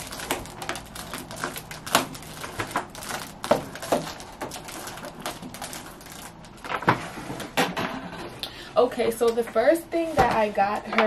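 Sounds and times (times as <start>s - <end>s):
foil balloon crinkling: 0.0s - 7.5s.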